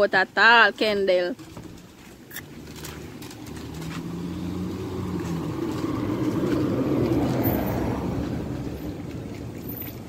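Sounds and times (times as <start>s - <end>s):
vehicle passing by: 2.4s - 10.0s.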